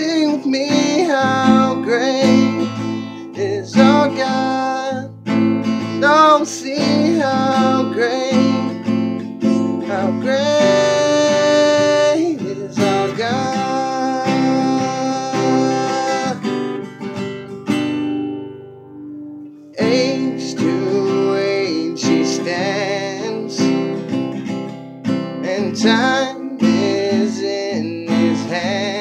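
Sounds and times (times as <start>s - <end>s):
man singing long notes: 0.0s - 5.1s, 5.9s - 8.8s, 9.8s - 16.4s, 19.7s - 24.0s, 25.4s - 29.0s
strummed acoustic guitar: 0.0s - 29.0s.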